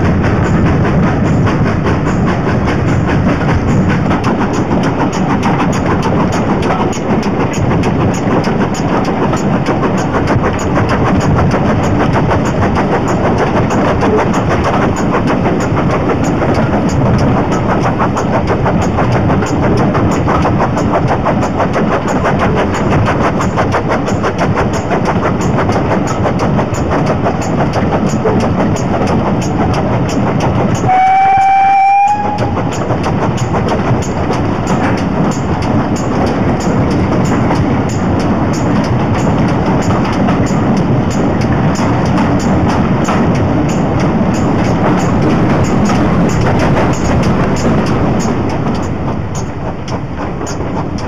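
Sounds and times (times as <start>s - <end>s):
steam train rumbling rhythmically: 0.0s - 51.0s
steam locomotive whistle blast: 30.8s - 32.6s.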